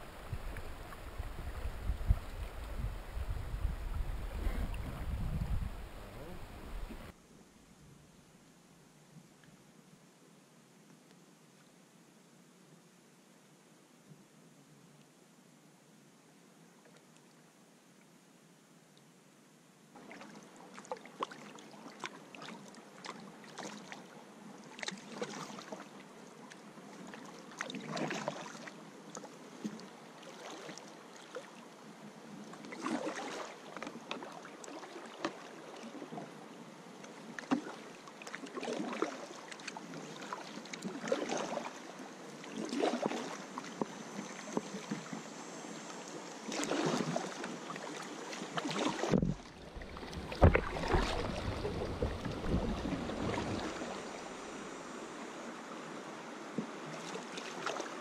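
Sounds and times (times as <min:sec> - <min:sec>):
paddle splashing in water: 0:00.0 - 0:07.1, 0:20.0 - 0:24.0, 0:24.8 - 0:26.0, 0:27.0 - 0:31.6, 0:32.6 - 0:36.3, 0:37.0 - 0:45.2, 0:46.2 - 0:54.9, 0:56.5 - 0:58.0
moving water hiss: 0:00.0 - 0:07.2, 0:34.3 - 0:58.0.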